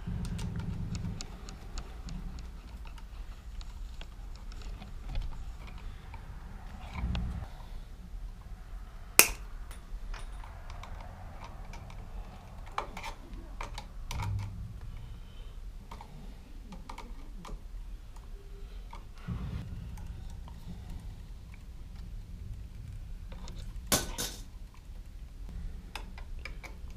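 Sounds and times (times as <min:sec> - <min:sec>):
sharp snap: 0:09.2 - 0:09.5.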